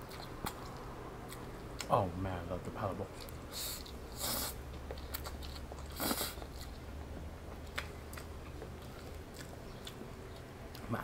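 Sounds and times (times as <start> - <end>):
chewing with crisp clicks: 0.0 - 2.0, 3.1 - 4.0, 4.7 - 6.8, 7.5 - 11.0.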